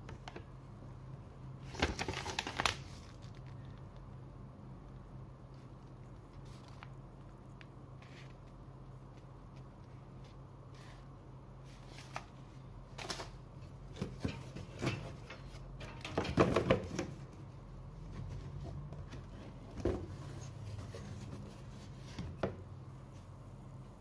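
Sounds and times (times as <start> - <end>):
low steady hum: 0.0 - 24.0
paper and plastic rustling: 1.6 - 3.8, 6.3 - 7.0, 11.6 - 15.6.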